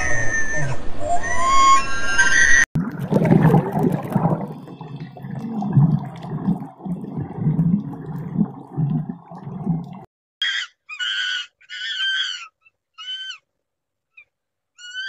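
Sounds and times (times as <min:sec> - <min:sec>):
short high-pitched animal calls: 0:14.1 - 0:15.0.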